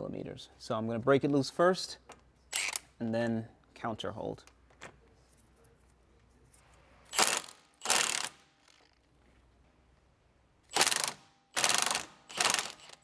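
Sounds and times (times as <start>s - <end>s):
impact wrench hammering: 10.7s - 13.0s.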